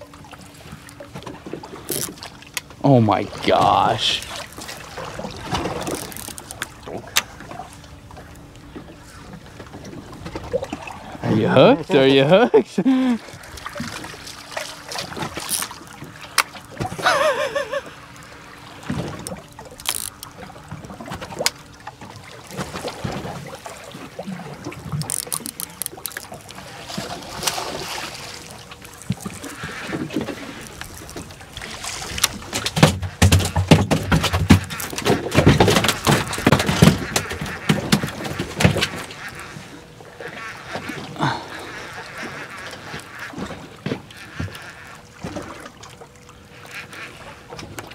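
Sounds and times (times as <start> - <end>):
water splashing: 0.0 - 47.9.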